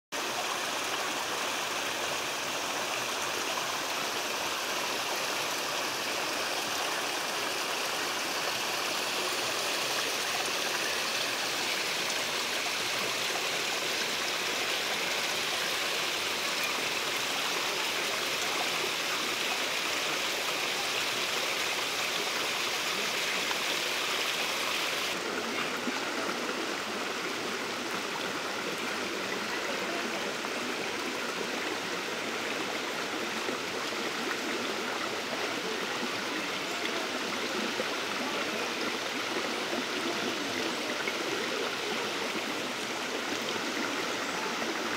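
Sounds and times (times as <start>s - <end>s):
water running over rocks: 0.2s - 44.9s.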